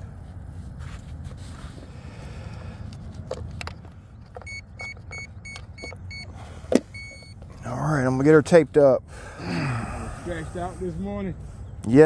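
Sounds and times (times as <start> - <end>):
short electronic beeps: 4.4 - 6.3, 6.9 - 7.4.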